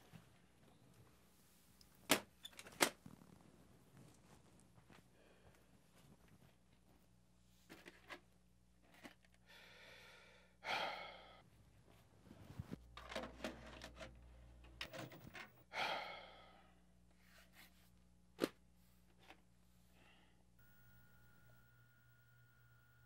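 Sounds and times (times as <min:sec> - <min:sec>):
man sighing heavily: 0:15.7 - 0:16.7.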